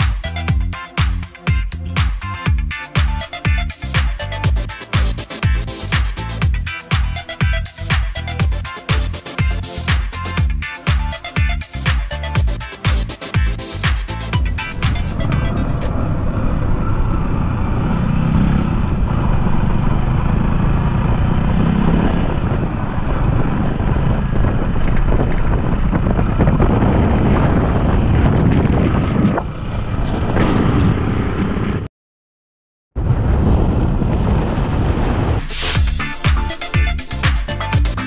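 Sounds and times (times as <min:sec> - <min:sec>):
road noise: 0:00.0 - 0:31.9
motorcycle engine: 0:02.5 - 0:31.8
wind noise on microphone: 0:14.4 - 0:31.9, 0:33.0 - 0:36.1.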